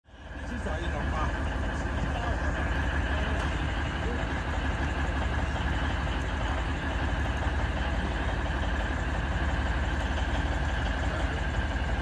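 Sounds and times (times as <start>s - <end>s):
diesel locomotive rumble: 0.0s - 12.0s.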